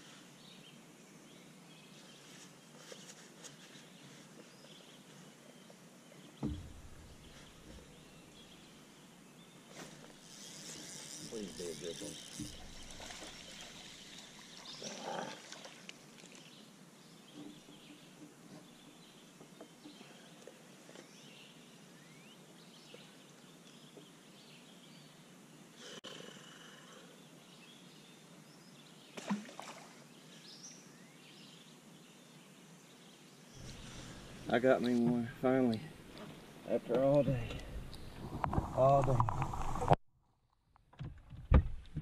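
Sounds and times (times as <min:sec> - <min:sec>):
rustles and clicks of fish handling: 0:02.1 - 0:05.8.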